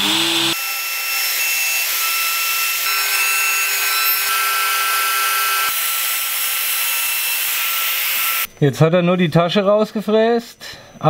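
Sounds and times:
router milling wood: 0:00.0 - 0:08.5.

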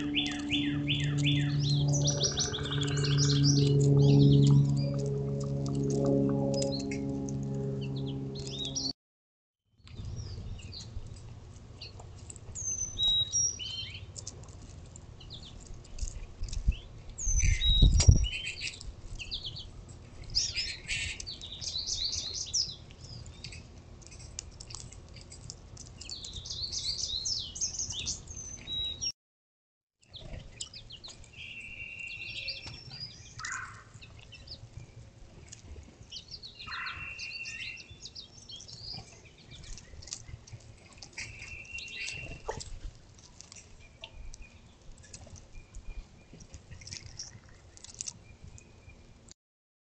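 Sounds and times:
birds chirping and singing: 0:00.0 - 0:08.9, 0:11.8 - 0:14.2, 0:15.2 - 0:24.8, 0:25.8 - 0:29.1, 0:30.1 - 0:42.6.

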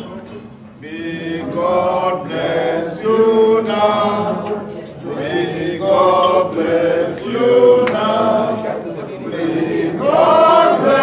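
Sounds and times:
group singing in unison: 0:00.0 - 0:11.0
hand claps: 0:07.2 - 0:08.1.

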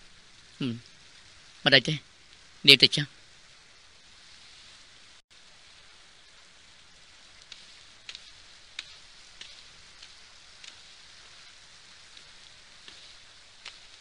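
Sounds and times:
faint high hiss: 0:00.0 - 0:14.0
soft ticks: 0:07.4 - 0:14.0.

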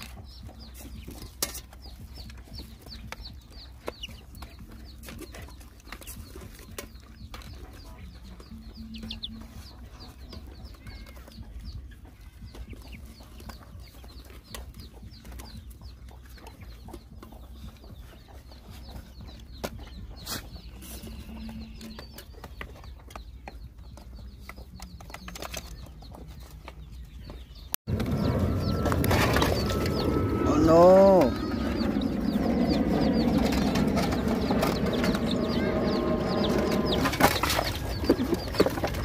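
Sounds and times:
chickens clucking: 0:00.0 - 0:39.0
loud noise: 0:27.9 - 0:38.6.

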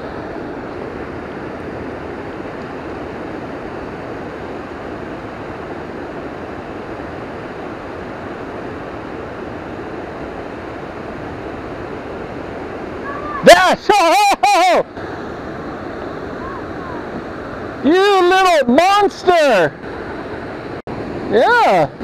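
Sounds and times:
water rushing over waterfall: 0:00.0 - 0:22.0.

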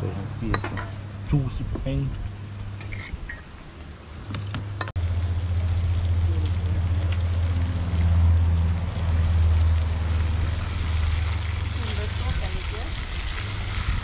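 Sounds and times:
loud steady low rumble: 0:04.6 - 0:14.0.

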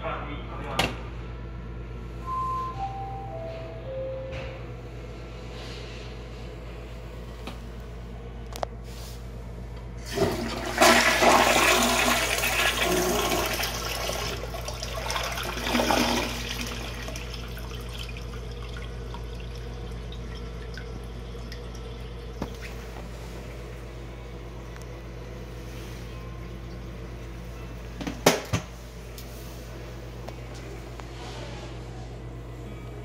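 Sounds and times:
toilet flushing: 0:10.0 - 0:22.8
water running as bowl refills: 0:10.0 - 0:22.8.

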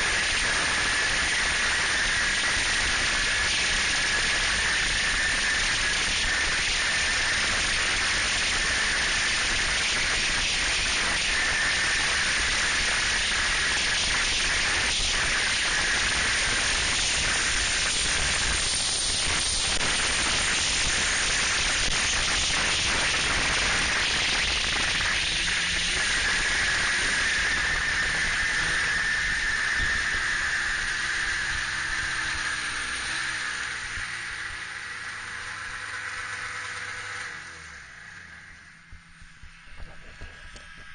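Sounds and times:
snowmobile running at speed: 0:00.0 - 0:40.9.

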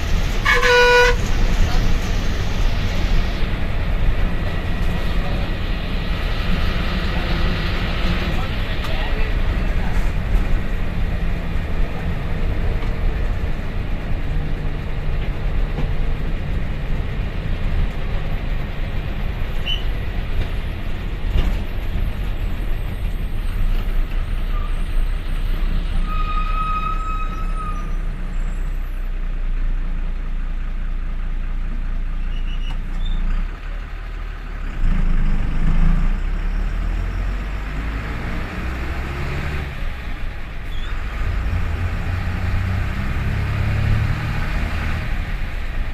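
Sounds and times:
bus diesel engine running: 0:00.0 - 0:45.9
road noise: 0:00.0 - 0:45.9
short high squeak: 0:24.5 - 0:25.1, 0:25.9 - 0:28.7, 0:32.2 - 0:33.3.

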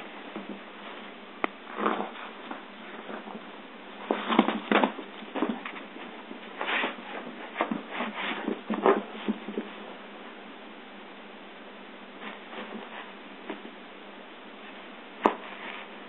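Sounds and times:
dog scuffling on a rug: 0:01.7 - 0:03.4, 0:04.0 - 0:09.9, 0:12.2 - 0:13.7, 0:14.7 - 0:15.9.

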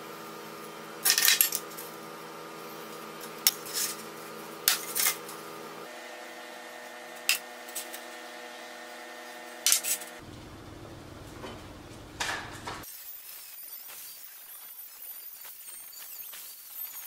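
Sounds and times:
steady background hum: 0:00.0 - 0:12.9.

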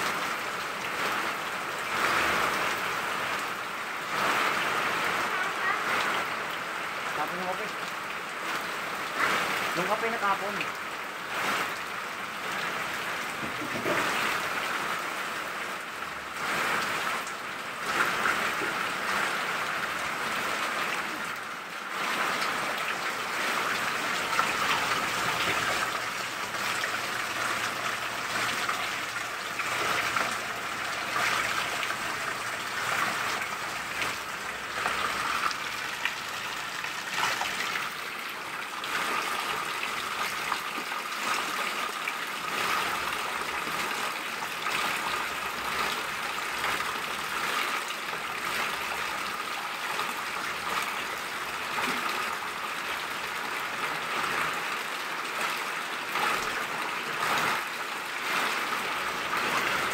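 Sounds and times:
heavy rain on concrete: 0:00.0 - 0:59.9
runoff splashing into buckets: 0:08.6 - 0:15.0, 0:16.3 - 0:53.3.

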